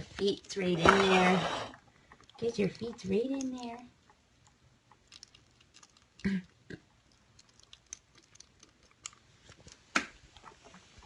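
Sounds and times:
kitten chewing and licking: 2.0s - 11.0s.

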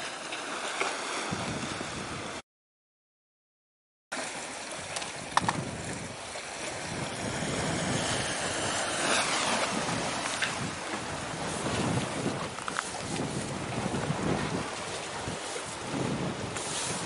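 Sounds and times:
sea waves washing: 0.0s - 2.4s, 4.1s - 17.0s
wind noise on microphone: 1.2s - 2.4s, 4.7s - 17.0s.

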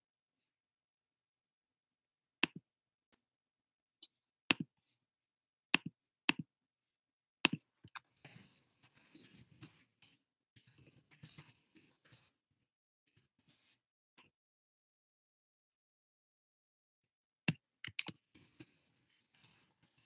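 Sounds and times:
computer mouse clicks: 17.5s - 18.2s.

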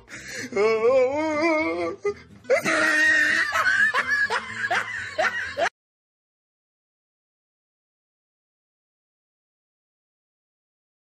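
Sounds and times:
background song with singing: 0.0s - 3.4s
laughter: 2.5s - 5.7s.

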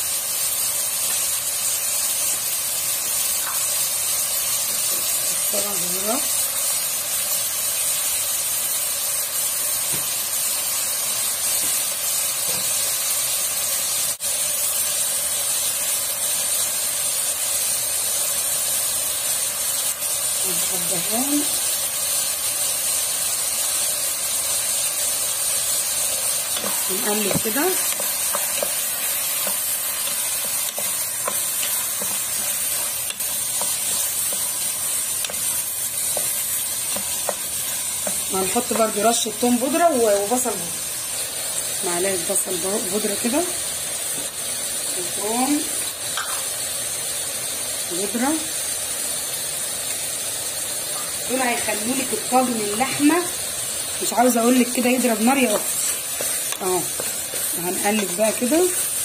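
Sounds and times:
meat and onions sizzling in oil: 0.0s - 59.0s
wooden spoon scraping pot: 26.5s - 38.9s.

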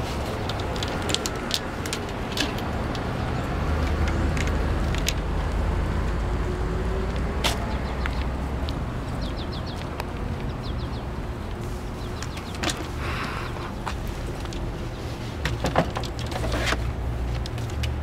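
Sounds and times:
vehicle engine rumble: 0.0s - 18.0s
bird chirping: 9.1s - 9.9s, 10.5s - 11.4s.

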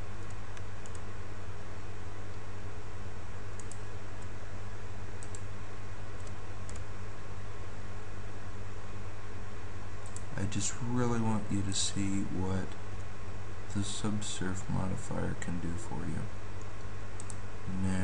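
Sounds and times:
low electrical hum: 0.0s - 18.0s
mouse and keyboard clicks: 3.6s - 4.3s.

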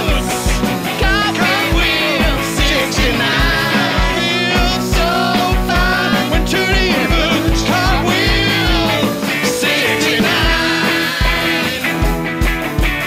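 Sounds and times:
voices singing: 0.0s - 12.3s
live rock band playing: 0.0s - 13.0s
kick drum beat: 0.1s - 9.7s.

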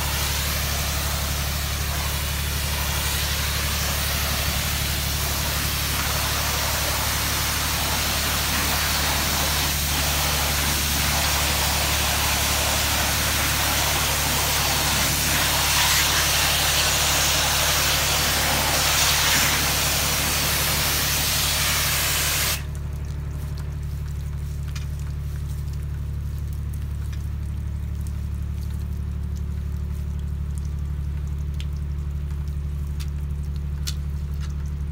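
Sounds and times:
water sprayer hissing: 0.0s - 22.7s.

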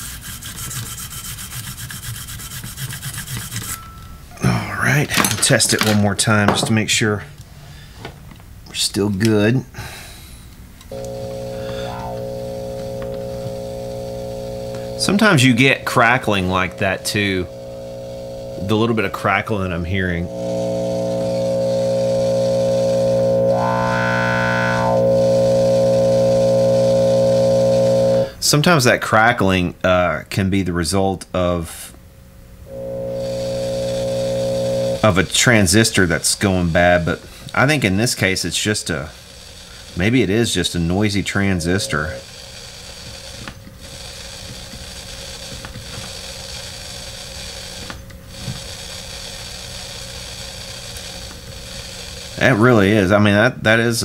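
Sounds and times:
amplifier hum and hiss: 10.5s - 39.3s, 40.0s - 42.3s
faint crackles: 10.9s - 15.2s
electric guitar chord with wah: 10.9s - 18.7s, 20.2s - 28.3s.

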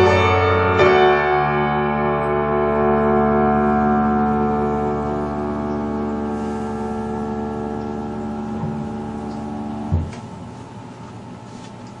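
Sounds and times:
piano chord ringing: 0.0s - 10.2s
piano damper thump: 7.8s - 10.4s.

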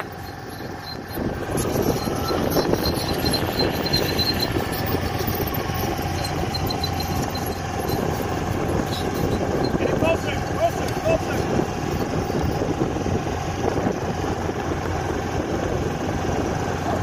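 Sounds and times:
faint rapid ticking: 0.0s - 12.6s
tank turbine engine running: 0.0s - 17.0s.

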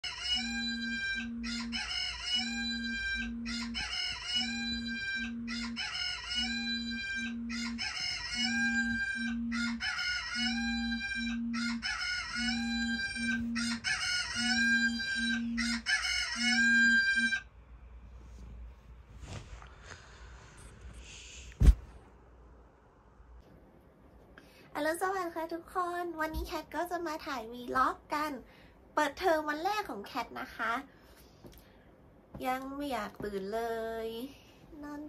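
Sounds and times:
smartphone alarm beeping: 0.0s - 17.4s.

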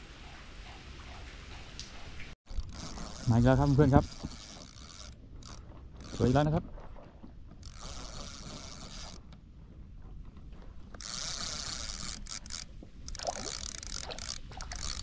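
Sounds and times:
spinning reel gears whirring: 2.5s - 6.6s, 7.6s - 9.4s, 10.9s - 15.0s.

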